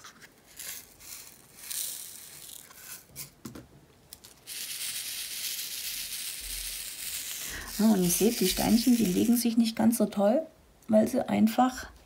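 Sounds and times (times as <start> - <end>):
plastic beads rattling in a tray: 0.5 - 3.3, 4.2 - 9.6.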